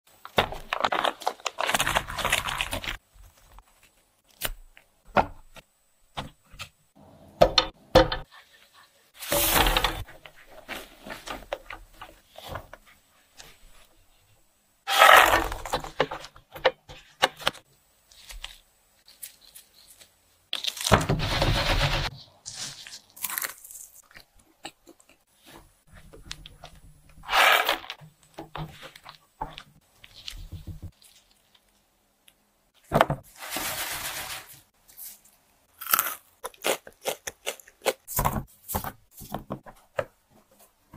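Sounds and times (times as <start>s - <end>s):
ingredients being handled: 0.2s - 4.4s, 18.1s - 24.4s, 33.2s - 39.4s.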